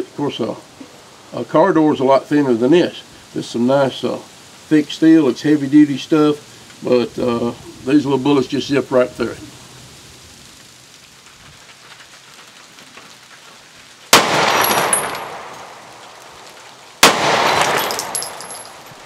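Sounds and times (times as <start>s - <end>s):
pistol shots with echo: 14.1s - 15.9s, 17.0s - 18.8s.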